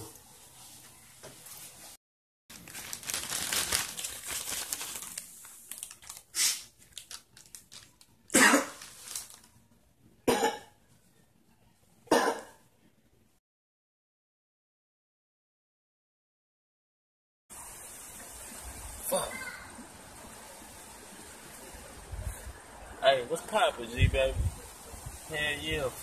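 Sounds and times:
plastic bag crinkling: 2.5 - 9.6
man coughing: 10.3 - 10.7.

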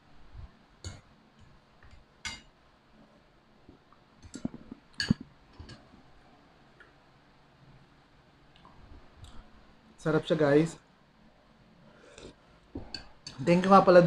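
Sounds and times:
cutlery clinking on ceramic plate: 5.0 - 5.8.

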